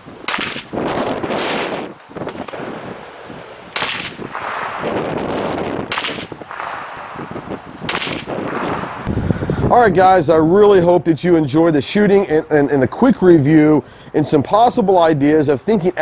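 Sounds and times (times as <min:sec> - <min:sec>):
single gunshots: 0:00.3 - 0:01.6, 0:03.7 - 0:09.1.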